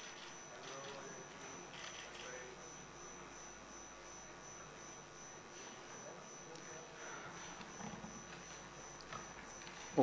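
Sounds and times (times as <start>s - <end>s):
faint indistinct murmurs: 5.4s - 10.0s.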